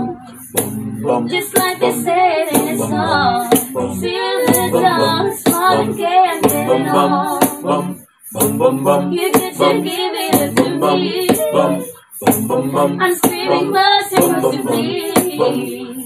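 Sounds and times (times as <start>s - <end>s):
sharp percussive hits: 0.0s - 15.4s
a cappella group singing: 0.0s - 16.0s.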